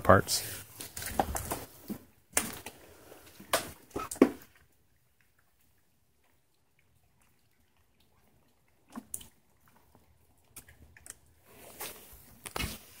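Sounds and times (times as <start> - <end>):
sharp knocks and cracks: 0.9 - 2.8.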